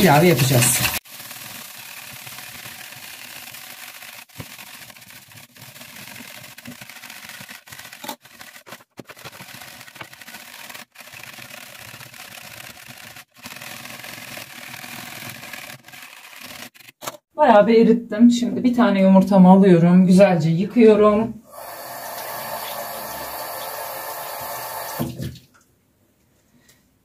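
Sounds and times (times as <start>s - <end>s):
whisk scraping plastic jug: 0.0s - 17.2s.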